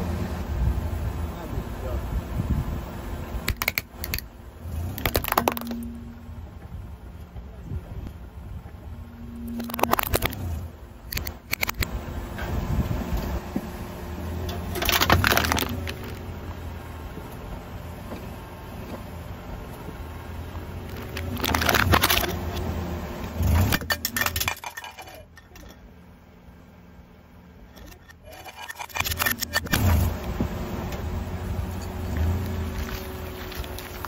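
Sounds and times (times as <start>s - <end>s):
slowly moving car: 0.0s - 34.0s
metal can crunching: 4.9s - 5.9s, 9.4s - 10.5s, 14.6s - 16.2s, 20.9s - 22.4s, 23.4s - 25.8s, 27.8s - 30.1s.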